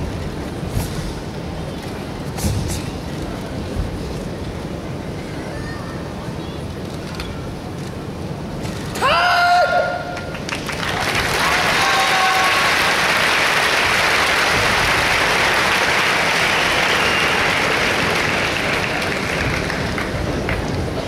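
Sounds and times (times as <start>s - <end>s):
large audience applauding: 10.2s - 21.0s.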